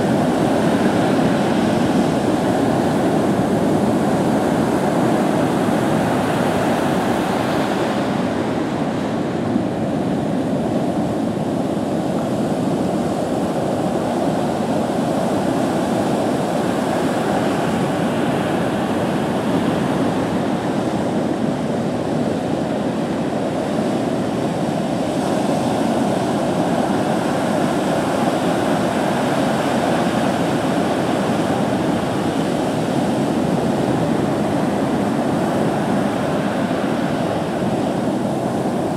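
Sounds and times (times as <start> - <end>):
heavy surf breaking: 22.2 - 38.9.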